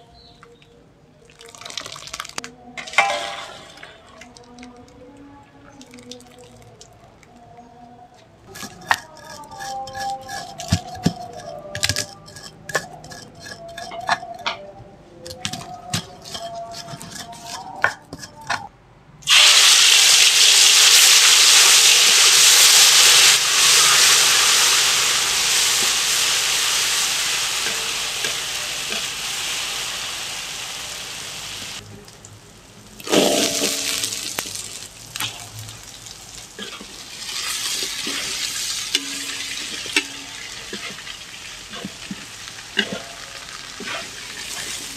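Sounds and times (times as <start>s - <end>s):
metal spatula stirring in wok: 8.5s - 14.6s, 15.4s - 18.7s, 22.7s - 30.7s, 33.1s - 35.6s, 36.4s - 44.9s
stone pestle grinding in mortar: 8.5s - 14.6s, 15.3s - 18.7s
paste sizzling in hot oil: 19.3s - 31.8s, 33.0s - 44.9s.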